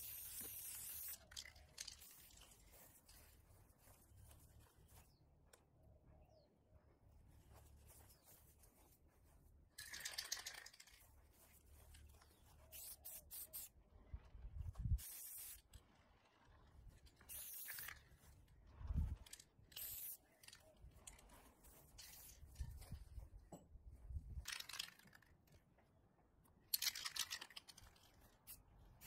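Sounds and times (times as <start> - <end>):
spray can hissing bursts: 0.0 - 1.4, 12.7 - 13.7, 15.0 - 15.7, 17.3 - 17.9, 19.8 - 20.2.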